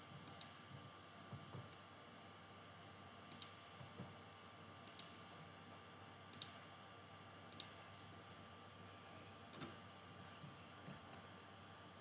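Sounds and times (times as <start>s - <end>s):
computer mouse clicks: 0.2s - 0.6s, 3.3s - 3.6s, 4.8s - 5.2s, 6.3s - 6.6s, 7.5s - 7.8s.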